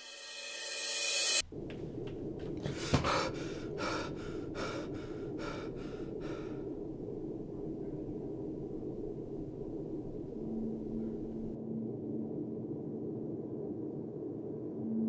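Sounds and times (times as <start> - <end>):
low hum: 0.0 - 15.0
man breathing heavily: 1.6 - 11.5
man gasping: 2.4 - 8.2.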